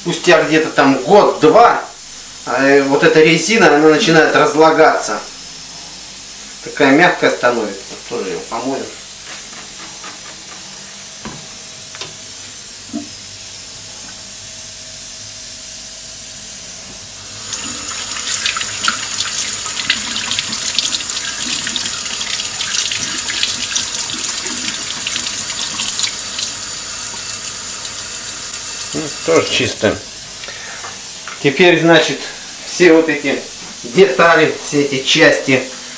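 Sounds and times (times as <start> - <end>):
water splashing: 17.5 - 29.2.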